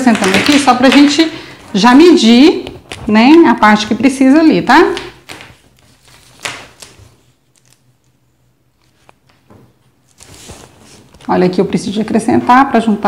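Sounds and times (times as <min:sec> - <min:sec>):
paper rustling: 0:05.0 - 0:12.5.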